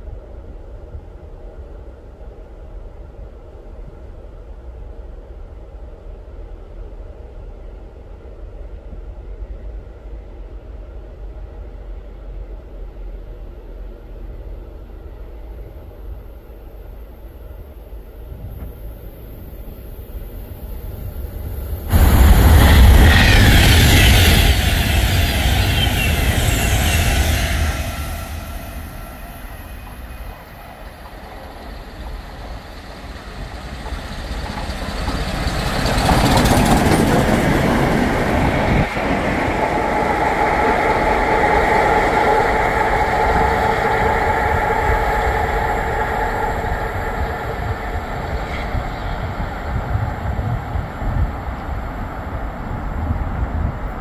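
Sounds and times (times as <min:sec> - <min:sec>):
train wheels rumbling on rails: 0:00.0 - 0:54.0
loud rushing noise: 0:21.7 - 0:29.7
ringing wheel squeal: 0:23.0 - 0:30.5.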